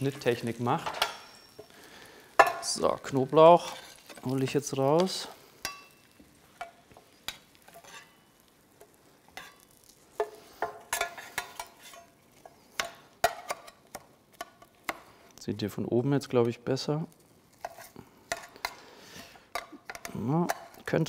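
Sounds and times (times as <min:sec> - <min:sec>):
metal spoon clinking on pans: 0:00.1 - 0:02.8, 0:03.4 - 0:15.1, 0:17.6 - 0:20.8.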